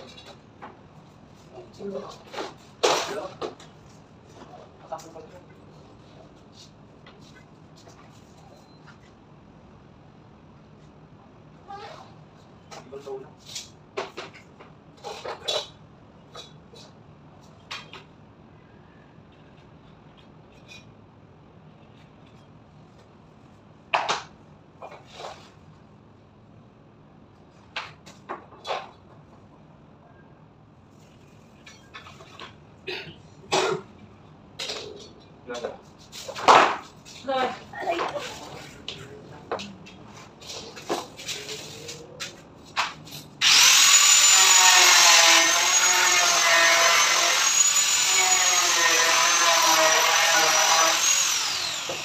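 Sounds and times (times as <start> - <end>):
power tool cutting panel: 43.4 - 52.0
power tool whining: 43.4 - 52.0.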